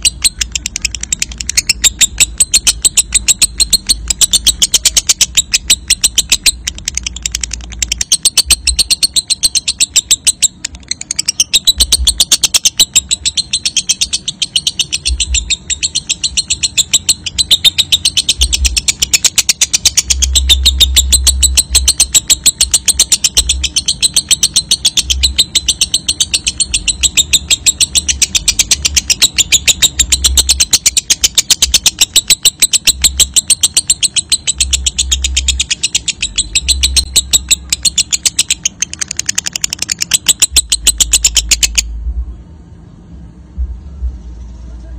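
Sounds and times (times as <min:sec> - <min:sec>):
lovebird rapid rattling chatter: 0:00.0 - 0:41.9.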